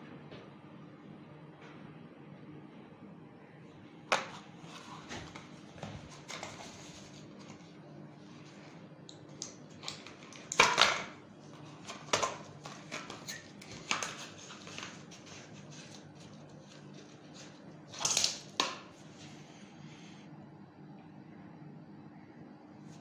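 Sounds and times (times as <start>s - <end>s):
faint hum: 0.0s - 23.0s
packaging crinkling and knocking: 9.4s - 19.0s.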